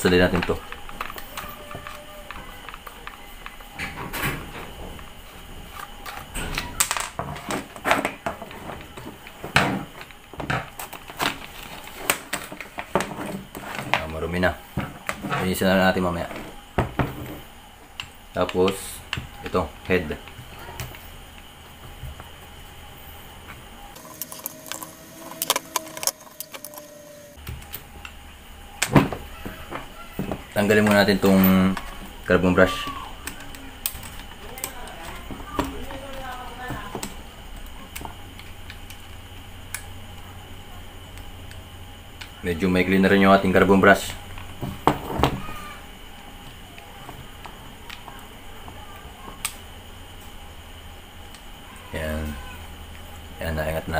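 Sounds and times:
plastic parts clicking: 0.0 - 17.2, 23.9 - 40.2.

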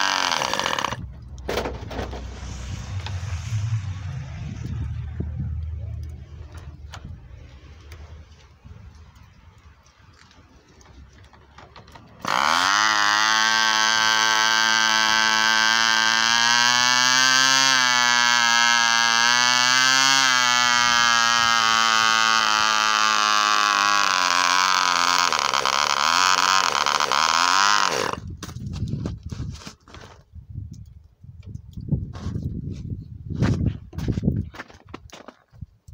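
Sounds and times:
electric starter: 0.0 - 1.0, 12.2 - 28.2.

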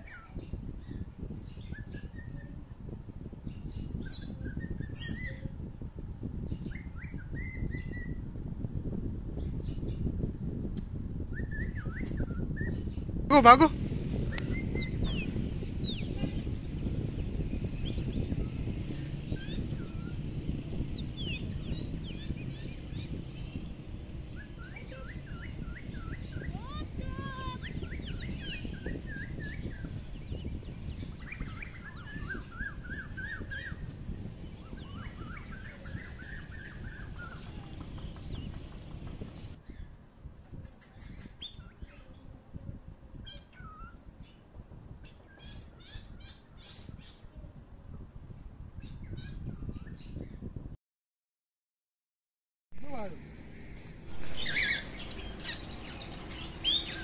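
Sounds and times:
birds chirping: 11.4 - 39.9, 52.8 - 57.0
steady low rumble: 53.0 - 57.0
repeated rising bird calls: 54.0 - 57.0.

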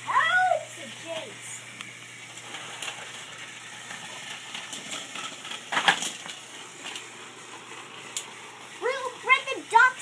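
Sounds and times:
plastic toy train pieces clattering: 2.4 - 7.0.

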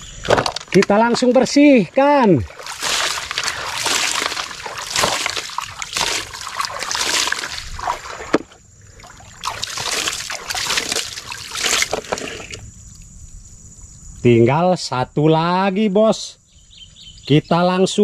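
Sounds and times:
scrubbing toy in splashing water: 2.4 - 12.6.

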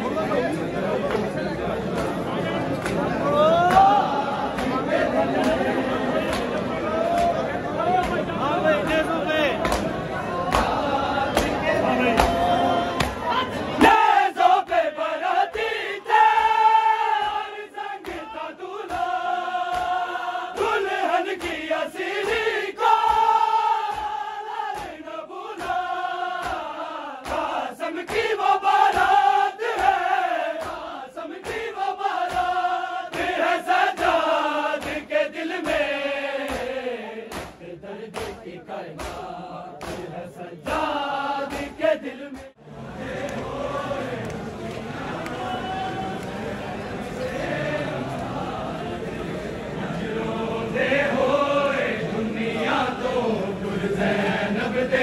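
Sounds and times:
crowd of men chanting: 0.0 - 55.0
hands slapping on chests: 2.8 - 13.2, 18.0 - 42.6.

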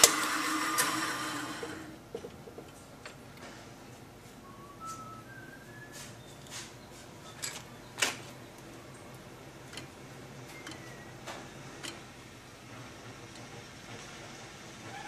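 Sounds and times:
metal parts clicking and tapping: 7.3 - 12.1.

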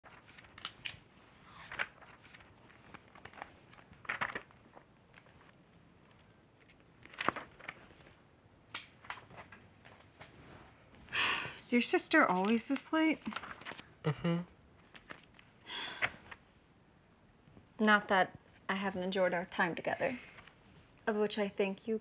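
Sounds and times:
magazine pages rustling: 0.0 - 10.4, 12.0 - 13.9, 14.8 - 16.4.

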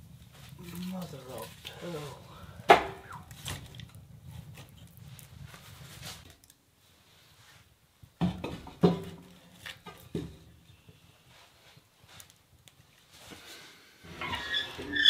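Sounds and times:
logs knocking in a wood stove: 2.6 - 3.6, 8.2 - 10.5.

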